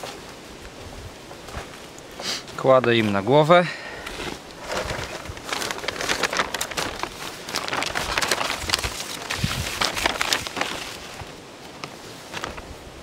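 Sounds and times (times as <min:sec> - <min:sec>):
plastic foil crinkling: 0:04.4 - 0:12.8.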